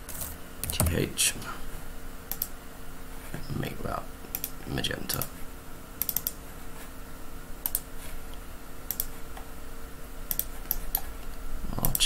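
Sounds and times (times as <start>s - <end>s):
faint electrical hum: 0.0s - 12.0s
computer mouse clicks: 2.3s - 2.5s, 4.3s - 5.3s, 6.0s - 6.4s, 7.6s - 7.9s, 8.9s - 9.5s, 10.3s - 11.1s.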